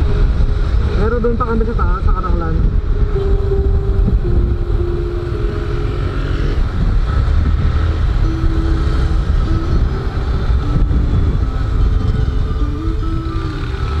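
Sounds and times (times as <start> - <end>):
wind noise on microphone: 0.0 - 14.0
motorcycle engine cruising: 2.6 - 14.0.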